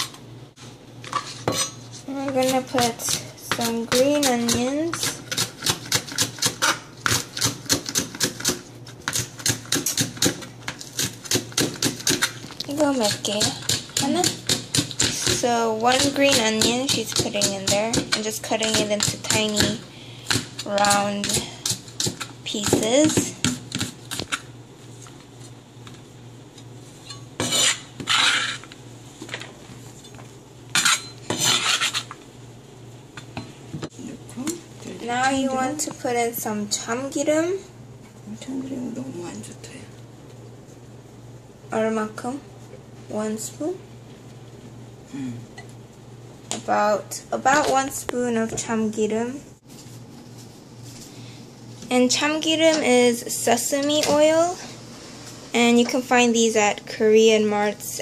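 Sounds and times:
knife chopping green onion: 1.5 - 12.4, 13.0 - 24.4.

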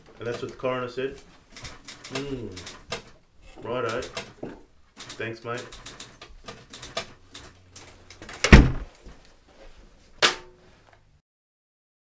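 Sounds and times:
heavy thump: 8.5 - 8.9.

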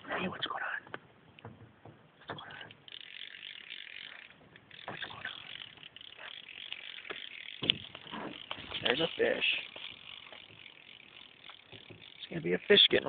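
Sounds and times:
fishing reel clicking whir: 2.6 - 13.0.

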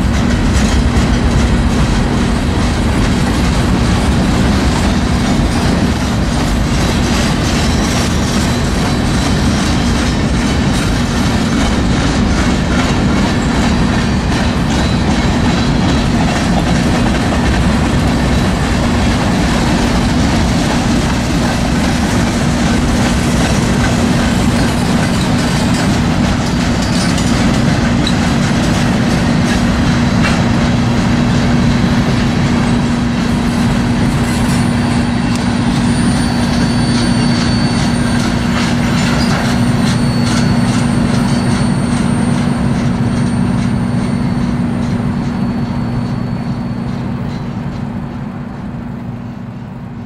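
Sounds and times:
wheels clicking over rail joints: 0.0 - 48.9
steel wheels rumbling on rail: 0.0 - 50.0
faint high wheel squeal: 24.1 - 27.4, 33.9 - 49.8.

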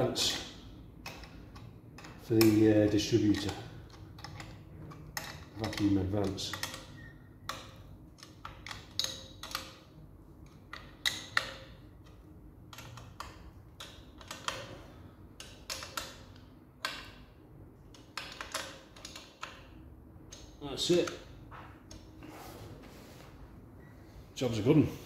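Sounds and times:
spanner clicking on metal: 0.3 - 14.7, 15.4 - 17.2, 17.9 - 19.7.

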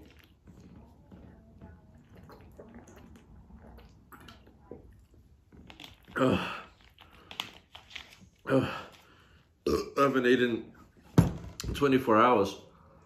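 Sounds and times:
loud burp: 9.6 - 10.1.

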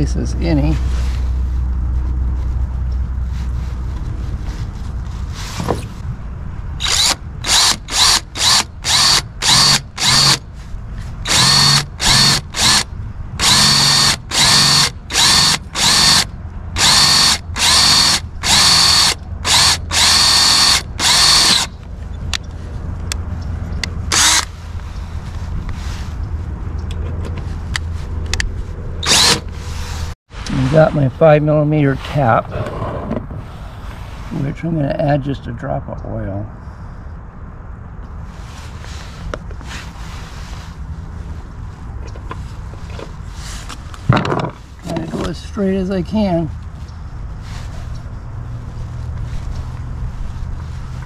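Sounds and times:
low wind rumble: 0.0 - 51.0
cordless drill motor whine: 6.8 - 10.4, 11.3 - 12.8, 13.4 - 16.2, 16.8 - 21.7, 24.1 - 24.5, 29.0 - 29.4.

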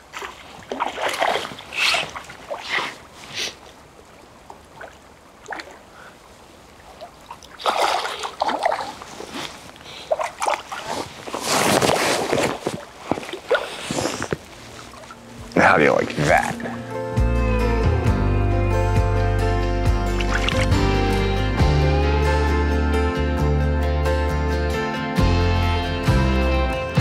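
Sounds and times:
fish splashing at water surface: 7.3 - 9.4.

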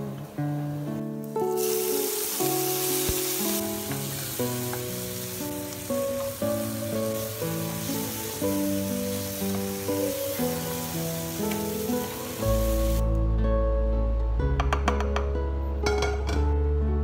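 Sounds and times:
tomatoes sizzling in oil: 1.3 - 13.0.

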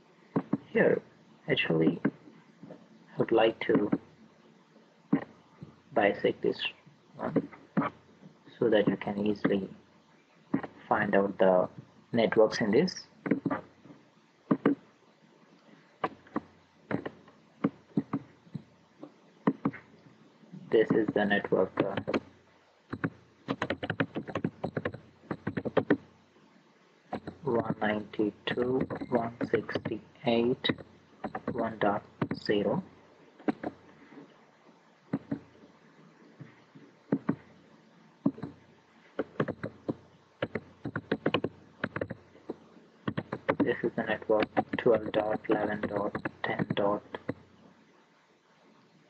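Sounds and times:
computer mouse clicking: 3.7 - 4.1, 14.5 - 14.8, 16.0 - 18.7, 19.4 - 20.0, 20.8 - 22.3, 22.9 - 26.0, 27.1 - 30.0, 30.6 - 32.5, 33.4 - 33.8, 35.1 - 35.5, 37.1 - 37.4, 38.2 - 38.6, 39.2 - 47.4
keyboard keystrokes: 20.9 - 22.3, 22.9 - 26.0, 27.1 - 27.9, 28.6 - 30.0, 30.7 - 32.5, 35.1 - 35.5, 39.2 - 42.2, 43.1 - 43.8
mouse clicks: 27.1 - 27.8, 28.5 - 30.0, 35.1 - 35.5, 39.2 - 43.8.

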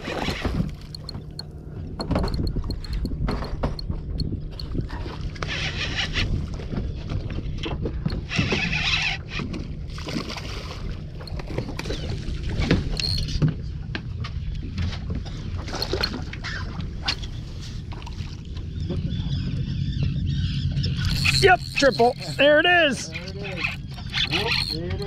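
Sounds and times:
boat engine idling: 0.0 - 25.0
knocks and clicks: 0.4 - 4.7
faint even ticks: 2.2 - 4.7.

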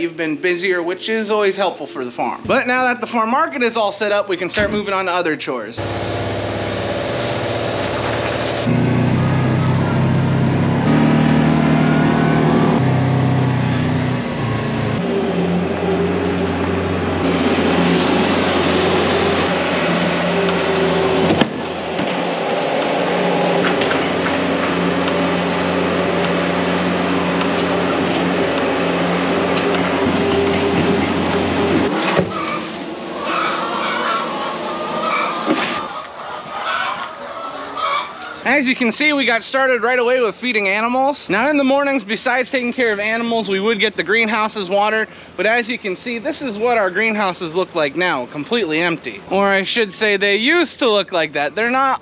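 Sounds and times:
side-by-side vehicle engine: 5.8 - 33.5
skid steer loader engine: 5.8 - 36.1.

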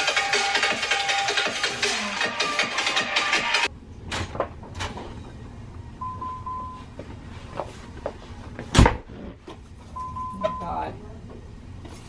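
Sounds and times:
double electronic beep: 6.0 - 6.9, 10.0 - 10.8.

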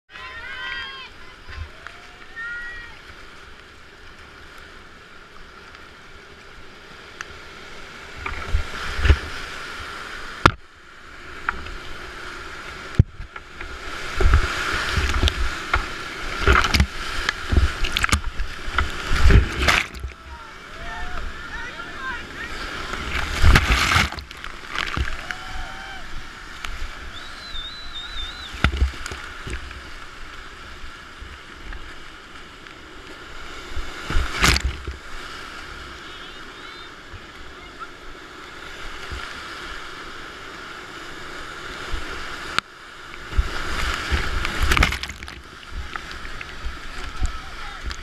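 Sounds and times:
whitewater rapids rushing: 0.1 - 3.6, 13.5 - 32.1, 33.3 - 48.0
paddle strokes and splashes: 0.1 - 48.0
loud splash of wave: 13.8 - 29.6.

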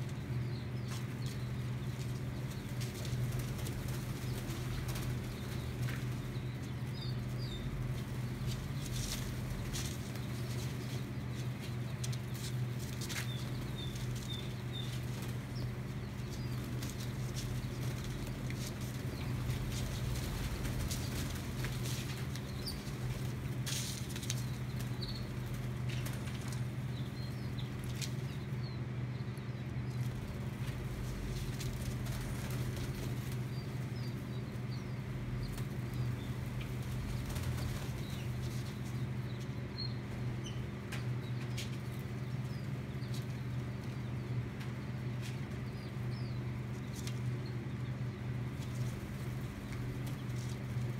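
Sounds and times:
chicks peeping: 0.0 - 50.9
steady low hum: 0.0 - 50.9
bird wingbeats: 0.9 - 28.5, 30.0 - 39.6.

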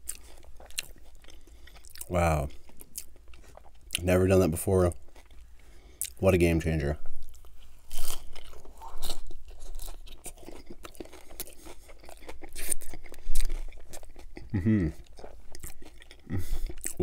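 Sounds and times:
crunchy chewing: 0.0 - 6.2, 7.0 - 17.0
person humming: 14.5 - 15.0.

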